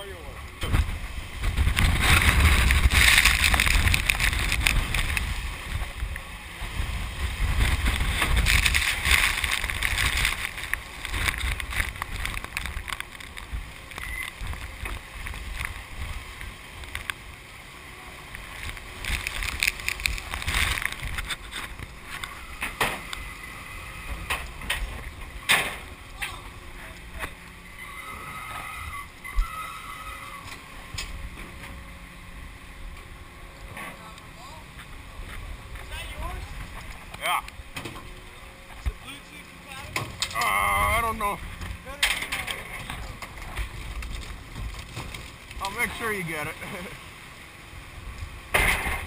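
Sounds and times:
sea washing along boat hull: 0.0s - 49.0s
wind buffeting microphone: 0.4s - 17.4s, 18.4s - 29.7s.

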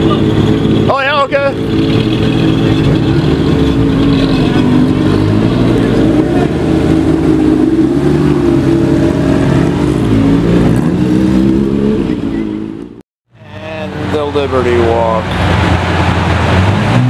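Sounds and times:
car engine at low revs: 0.0s - 13.0s.

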